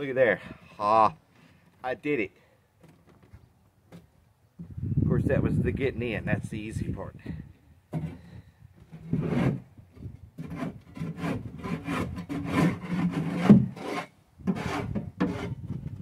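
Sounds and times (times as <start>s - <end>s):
tool scraping plywood floor: 7.9s - 16.0s.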